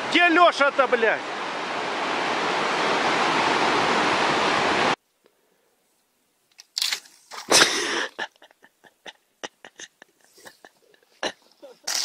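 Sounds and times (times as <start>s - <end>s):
river rapids rushing: 0.0s - 5.0s.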